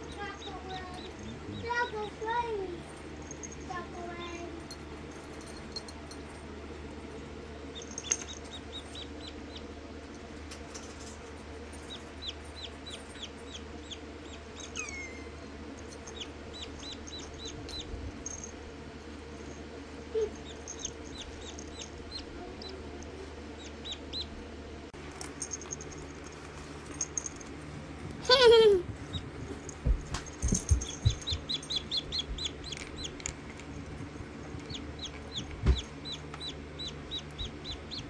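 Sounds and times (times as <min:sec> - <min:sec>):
faint low hum: 0:00.0 - 0:38.0
chick peeping: 0:23.6 - 0:24.3, 0:31.0 - 0:33.2, 0:34.7 - 0:38.0.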